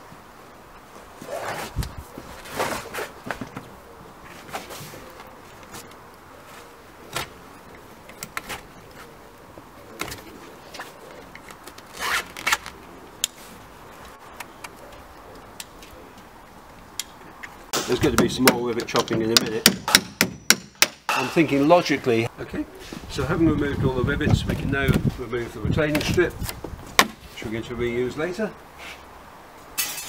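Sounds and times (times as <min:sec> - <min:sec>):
fabric cut and pulled from frame: 0:11.9 - 0:12.8.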